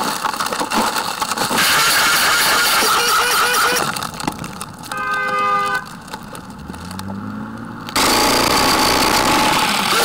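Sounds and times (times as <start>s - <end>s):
two-tone car horn: 4.9s - 5.9s.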